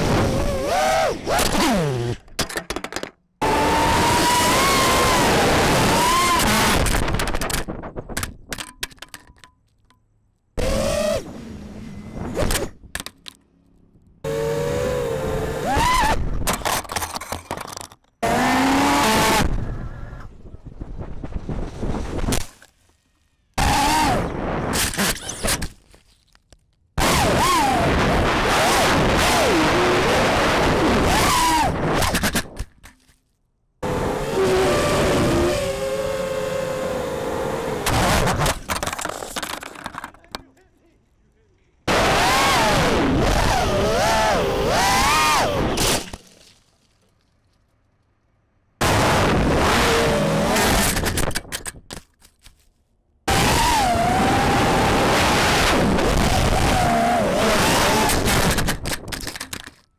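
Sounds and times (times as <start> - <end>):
drone motors whining: 0.0 - 2.2, 3.4 - 6.9, 10.6 - 12.8, 14.2 - 16.4, 23.0 - 25.5, 27.0 - 32.1, 33.8 - 38.5, 41.9 - 46.2, 53.3 - 58.6.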